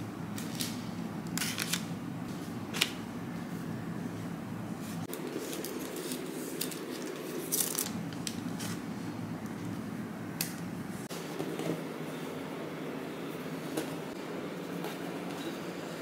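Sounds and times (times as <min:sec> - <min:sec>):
steady low hum: 0:00.0 - 0:16.0
packaging crinkling and rustling: 0:00.4 - 0:01.9, 0:05.1 - 0:08.8.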